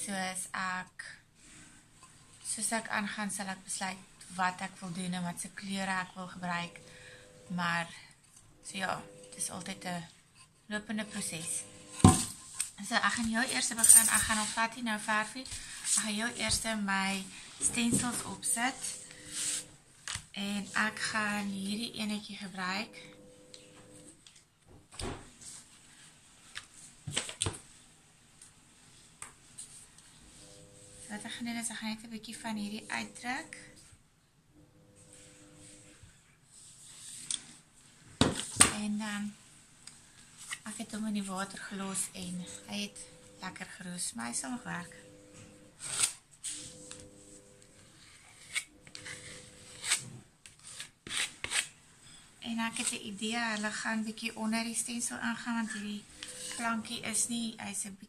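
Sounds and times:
metal scraper on plastic stencil: 0:48.4 - 0:51.7, 0:56.2 - 0:56.8.

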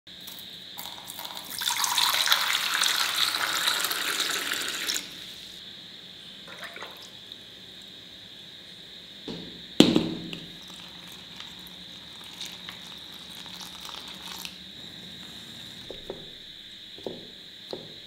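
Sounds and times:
water pouring into metal bowl: 0:00.8 - 0:05.1, 0:10.6 - 0:14.6.

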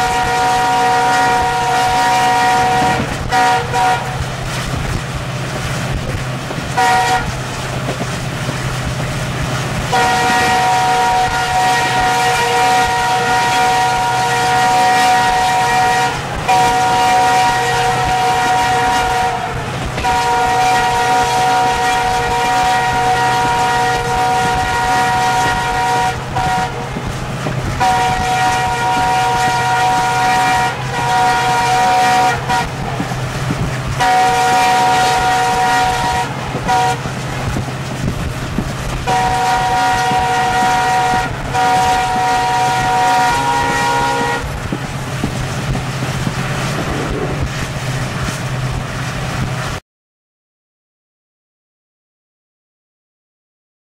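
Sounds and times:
locomotive air horn blasts: 0:00.0 - 0:04.3, 0:06.7 - 0:07.4, 0:09.8 - 0:33.1, 0:33.9 - 0:37.6, 0:39.0 - 0:45.4
train rumbling: 0:00.0 - 0:49.8.

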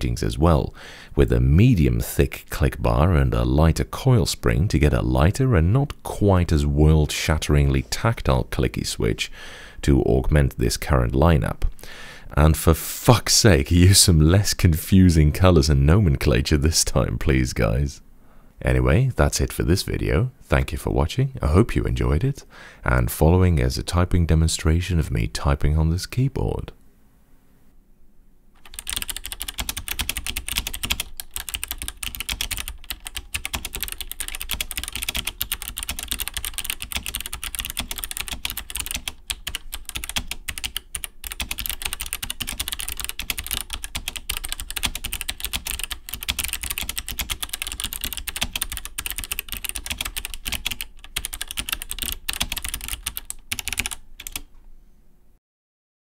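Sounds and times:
clicky keyboard typing: 0:28.6 - 0:54.5.

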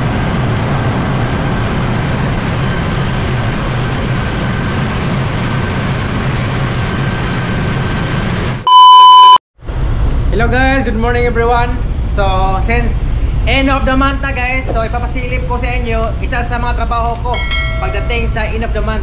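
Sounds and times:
engine room machinery drone: 0:00.0 - 0:08.8, 0:09.6 - 0:19.0
faint high whine: 0:08.7 - 0:09.4.

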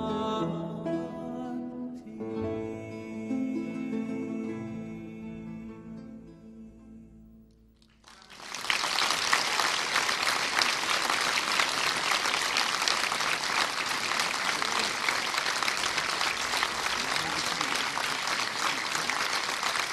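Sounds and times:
audience applauding: 0:07.8 - 0:19.9.

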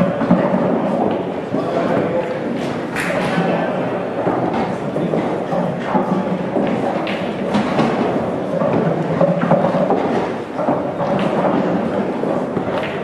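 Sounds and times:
murmur of many voices: 0:00.0 - 0:13.0.

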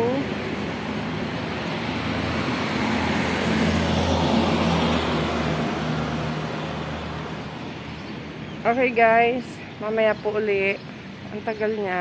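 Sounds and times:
vehicle driving past: 0:00.2 - 0:08.7.

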